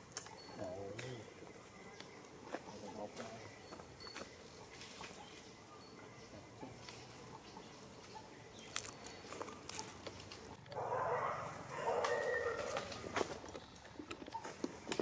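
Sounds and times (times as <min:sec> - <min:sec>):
monkeys calling: 0:00.2 - 0:13.4.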